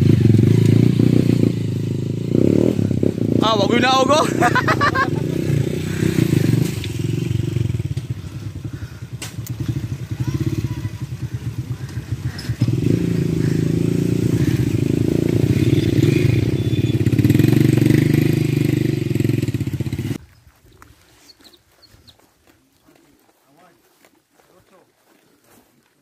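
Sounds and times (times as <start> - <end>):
motorcycle engine under load: 0.0 - 3.6, 4.4 - 20.2.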